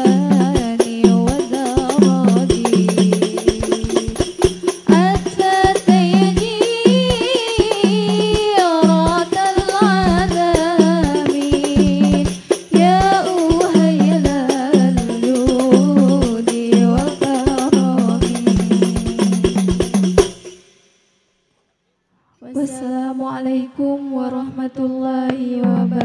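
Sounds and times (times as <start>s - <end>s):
women singing devotional melody: 0.0s - 20.2s, 22.4s - 26.0s
hand-struck frame drums: 0.0s - 20.9s.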